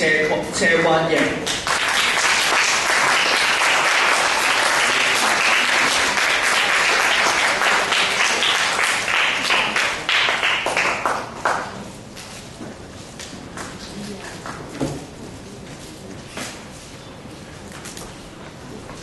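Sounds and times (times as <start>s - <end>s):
audience applauding: 1.5s - 11.8s.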